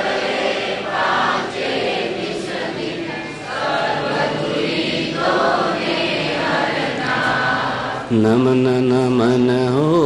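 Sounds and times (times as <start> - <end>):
congregation singing a hymn: 0.0 - 10.0.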